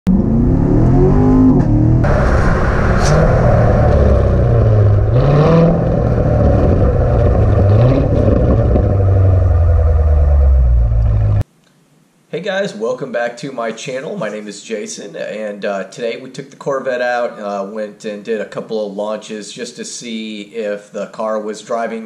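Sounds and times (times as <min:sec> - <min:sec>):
car engine revving loudly: 0:00.1 - 0:11.4.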